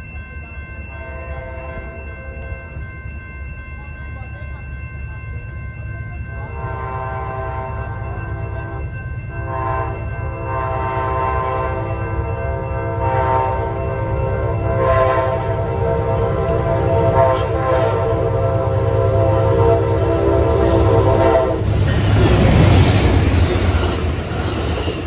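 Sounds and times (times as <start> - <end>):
train rumble: 0.0 - 25.0
train horn blasts: 6.6 - 21.8.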